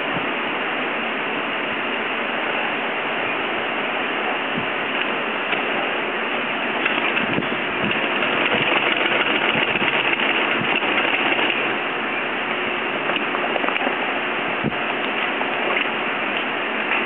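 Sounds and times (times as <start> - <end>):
sewing machine stitching: 6.8 - 11.8.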